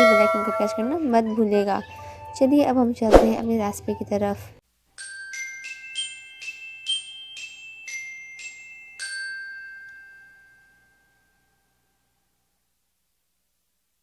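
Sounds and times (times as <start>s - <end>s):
glockenspiel-like jingle: 0.0s - 1.6s, 5.0s - 12.1s.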